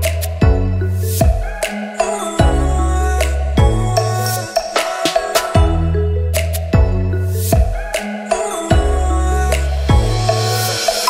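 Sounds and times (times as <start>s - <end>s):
deep bass notes: 0.0s - 1.4s, 2.4s - 4.4s, 5.6s - 7.8s, 8.7s - 10.7s.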